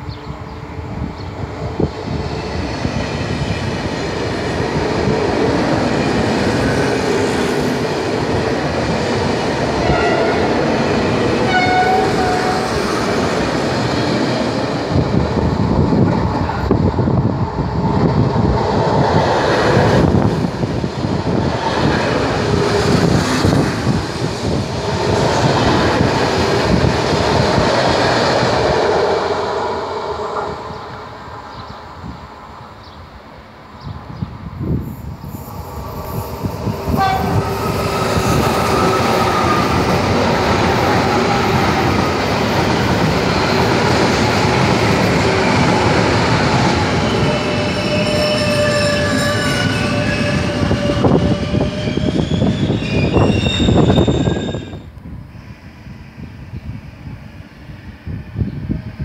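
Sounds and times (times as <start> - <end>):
train wheels rushing on rail: 0.0 - 59.0
train horn notes: 9.8 - 10.6, 11.5 - 12.7, 36.9 - 37.4.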